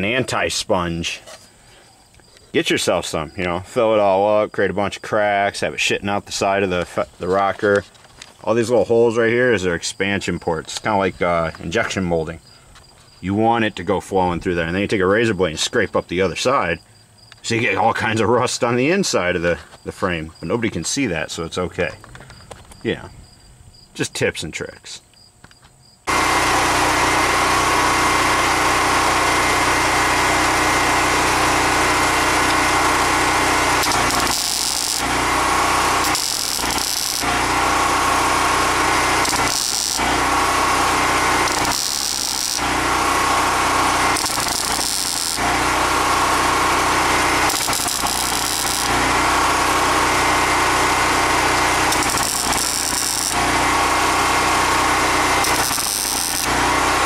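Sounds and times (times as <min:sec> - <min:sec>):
welder arc crackling: 0:31.2 - 0:57.0.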